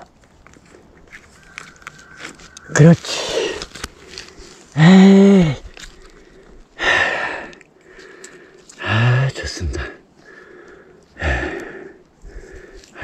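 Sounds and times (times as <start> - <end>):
man breathing heavily: 2.8 - 13.0
man grunting: 4.8 - 5.6.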